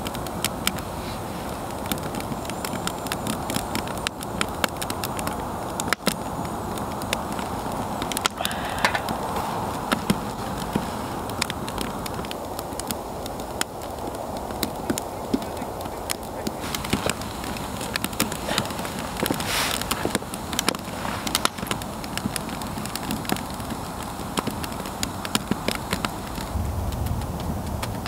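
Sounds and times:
wood fire crackling: 0:00.0 - 0:28.0.

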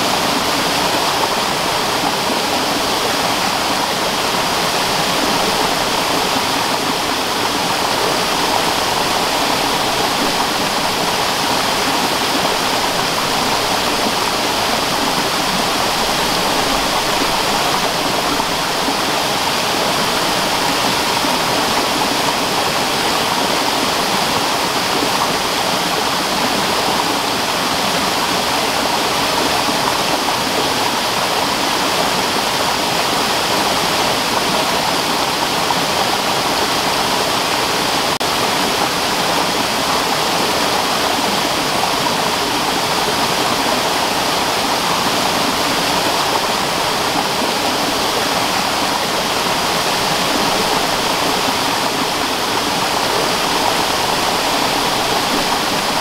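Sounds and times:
waterfall rushing over boulders: 0:00.0 - 0:56.0.

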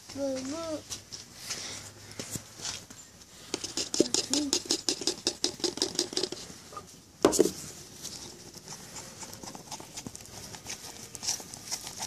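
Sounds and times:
putty knife scraping a foam cup: 0:03.5 - 0:06.4.

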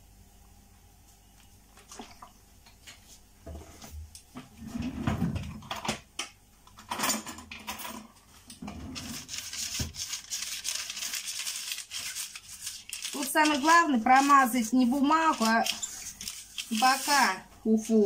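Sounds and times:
fingers rubbing oil on paper: 0:09.1 - 0:17.4.

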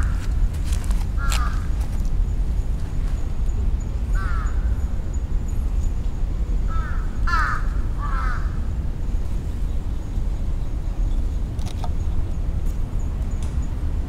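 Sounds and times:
crow cawing: 0:00.0 - 0:00.2, 0:01.2 - 0:01.7, 0:04.2 - 0:04.7, 0:06.7 - 0:08.6.

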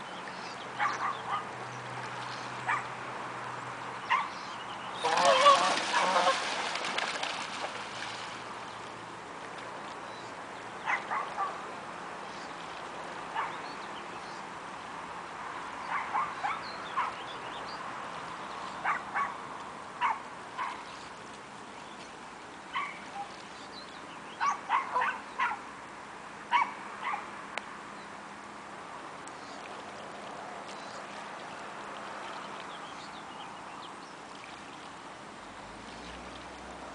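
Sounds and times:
steady water noise: 0:00.0 - 0:36.9
geese calling: 0:05.0 - 0:06.5.

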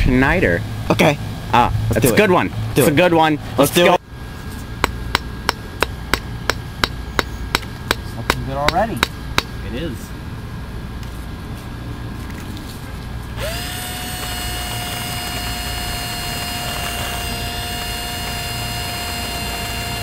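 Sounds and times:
electric drill whining: 0:13.4 - 0:20.0.

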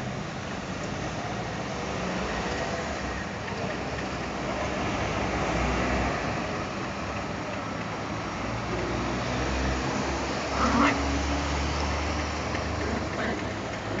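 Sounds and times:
street traffic rumble: 0:00.0 - 0:14.0
small dogs play-fighting: 0:10.5 - 0:11.0.

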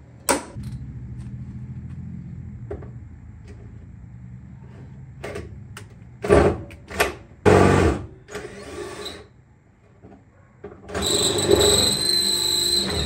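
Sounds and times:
power drill whining: 0:07.5 - 0:09.3, 0:10.9 - 0:13.0.

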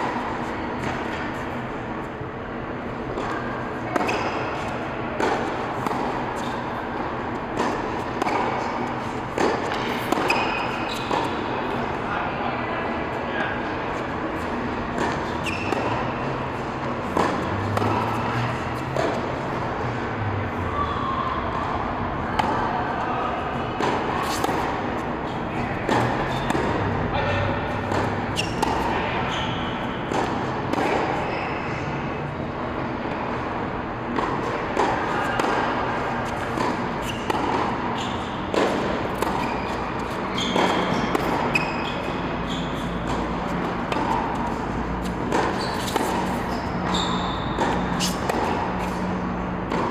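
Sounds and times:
tennis ball bouncing on court: 0:00.0 - 0:02.0, 0:02.9 - 0:11.9, 0:14.0 - 0:20.0, 0:21.6 - 0:22.6, 0:23.5 - 0:31.3, 0:34.1 - 0:49.9
racket striking tennis ball: 0:03.0 - 0:11.9, 0:14.4 - 0:20.0, 0:23.5 - 0:27.0, 0:27.6 - 0:31.3, 0:34.1 - 0:49.9.

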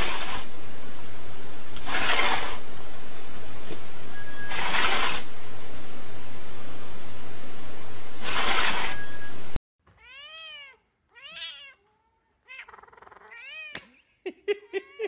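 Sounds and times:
cat meowing: 0:10.0 - 0:13.8.

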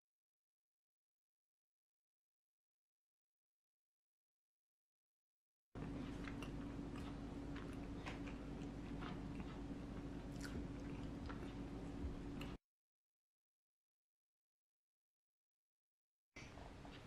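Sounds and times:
steady low hum: 0:05.8 - 0:12.6.

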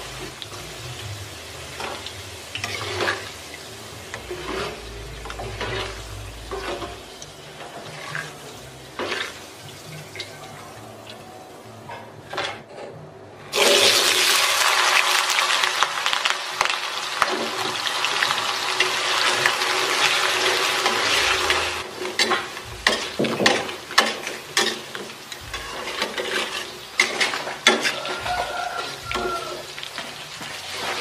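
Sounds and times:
potatoes deep-frying in oil: 0:00.0 - 0:11.2, 0:13.5 - 0:31.0.

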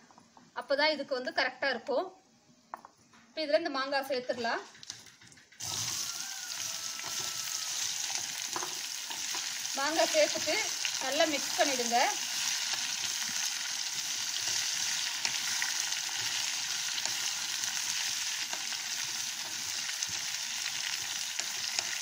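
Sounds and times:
food sizzling in hot oil: 0:05.6 - 0:22.0.

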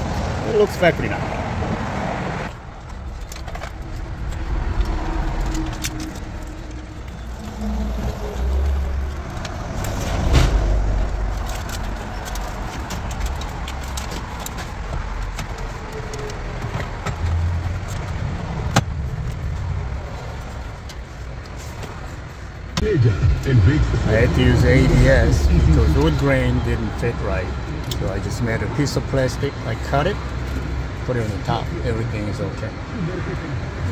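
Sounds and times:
wires and plugs rustling: 0:02.5 - 0:22.8.

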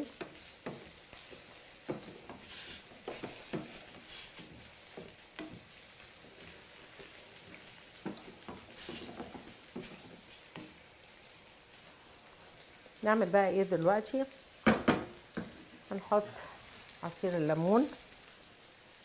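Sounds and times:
mushrooms sizzling in a pan: 0:00.0 - 0:19.0
wooden spatula scraping a pan: 0:00.1 - 0:10.8, 0:15.0 - 0:17.2.

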